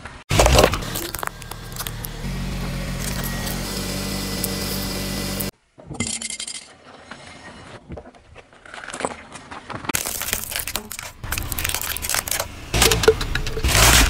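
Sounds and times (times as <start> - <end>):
car engine running: 0.3 - 5.5.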